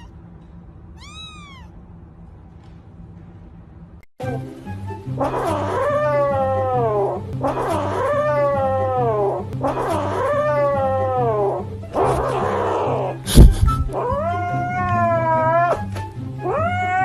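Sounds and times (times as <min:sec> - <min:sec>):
kitten yowling: 0:01.0 - 0:01.8, 0:05.2 - 0:13.2, 0:13.8 - 0:17.0
background music with low bass: 0:04.2 - 0:17.0.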